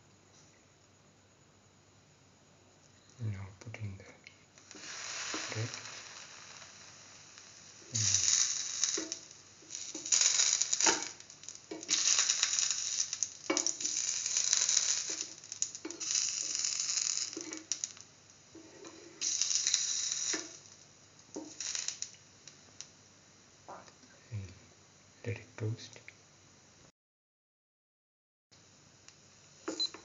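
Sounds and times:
oil sizzling in a pan: 4.4s - 23.8s, 28.6s - 30.0s.

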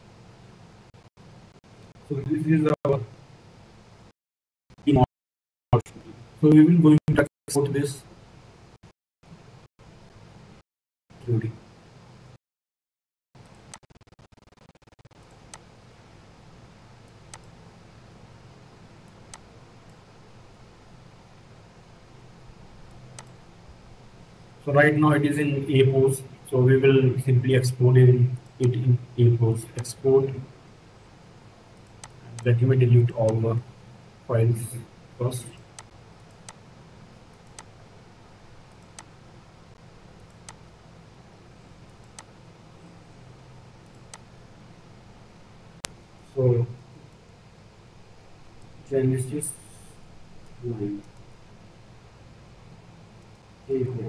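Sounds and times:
microphone hiss: 0.0s - 4.1s, 5.8s - 12.4s, 13.4s - 54.0s
faint low hum: 13.4s - 54.0s
computer mouse clicks: 17.1s - 17.6s, 19.0s - 20.0s, 22.9s - 23.4s, 31.8s - 32.5s, 35.6s - 36.6s, 37.3s - 37.8s, 38.7s - 39.2s, 40.2s - 40.7s, 41.8s - 42.3s, 43.8s - 44.3s, 53.2s - 53.5s.

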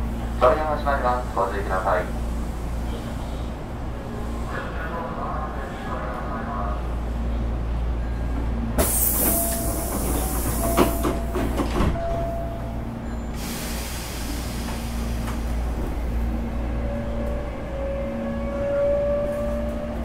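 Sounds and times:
train running rumble: 0.0s - 20.0s
loud hiss: 13.4s - 15.2s.

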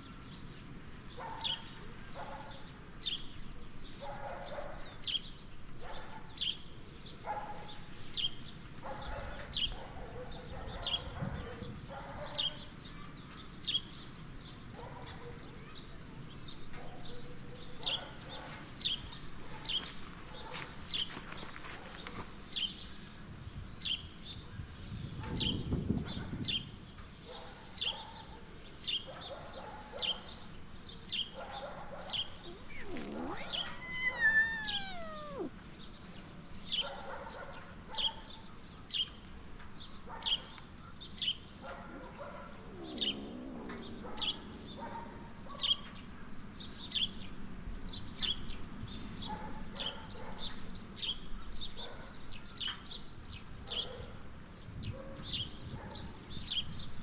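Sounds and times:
small bird chirping: 32.1s - 35.6s
cat meowing: 32.4s - 35.6s.

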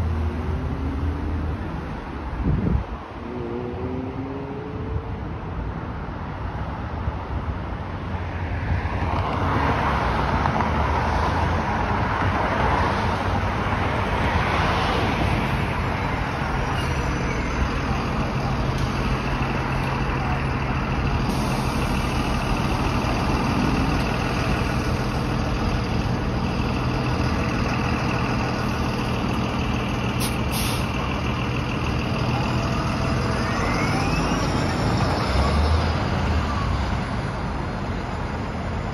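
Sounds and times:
bus engine running: 14.9s - 38.9s
air brake hiss: 30.2s - 31.0s.

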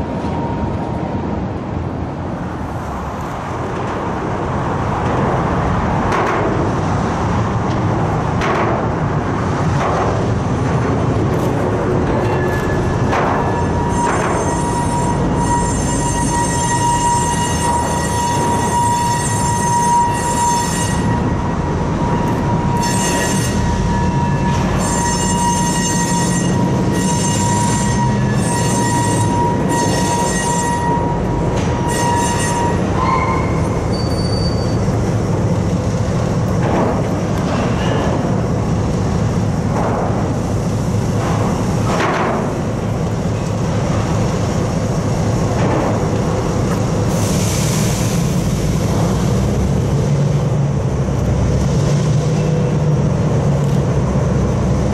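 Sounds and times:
road traffic: 0.0s - 54.9s
locomotive wheel squeal: 12.0s - 35.0s.

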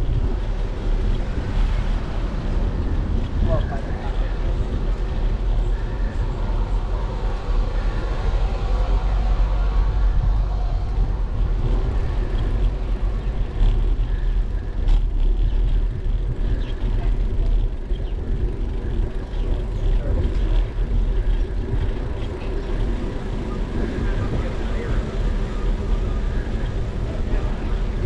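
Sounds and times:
bicycle tyre and road noise: 0.0s - 28.0s
wind rumble on microphone: 0.0s - 28.0s.

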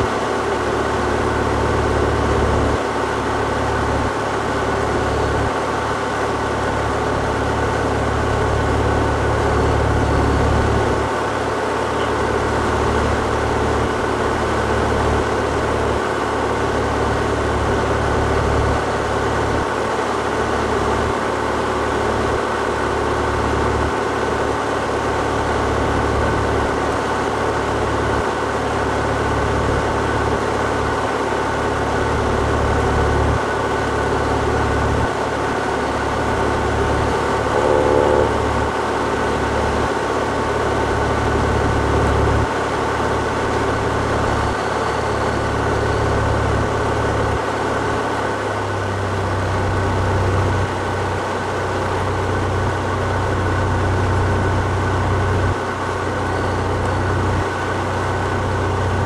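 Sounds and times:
airplane engine drone in cabin: 0.0s - 59.0s.

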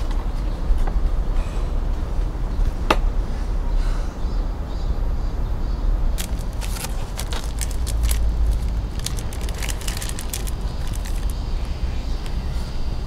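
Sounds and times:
low rumble of street traffic: 0.0s - 13.0s
plastic wrapper crinkling: 6.2s - 12.4s.

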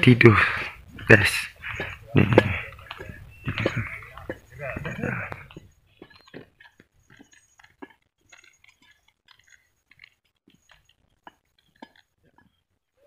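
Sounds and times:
footsteps on dirt trail: 0.0s - 12.6s.

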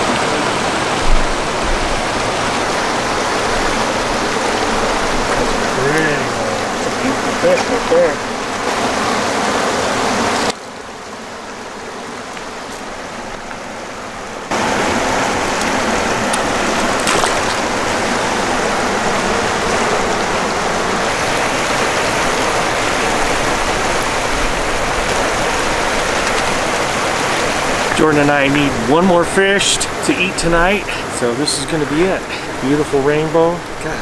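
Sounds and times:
running water: 0.0s - 34.0s.

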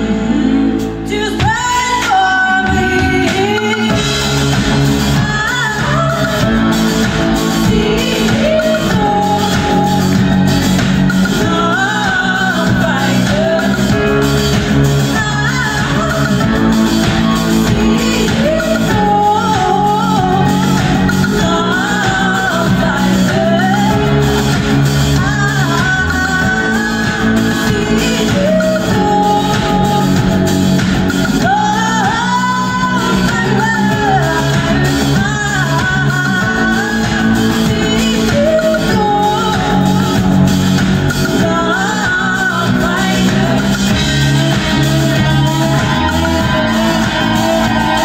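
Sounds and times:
live rock band: 0.0s - 48.0s
woman singing: 0.0s - 48.0s.

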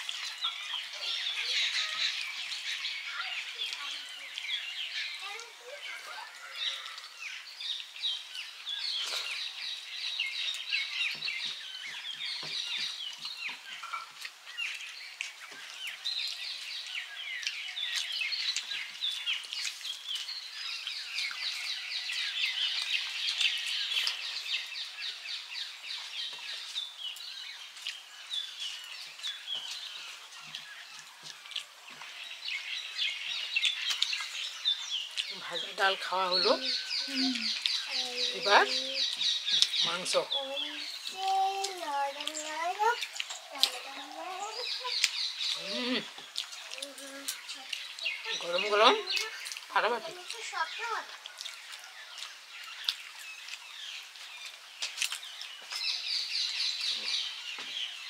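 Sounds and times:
small birds chirping: 0.0s - 58.0s
soft smacking of eating: 10.4s - 24.7s, 26.0s - 32.2s, 33.4s - 35.6s, 41.2s - 57.7s.

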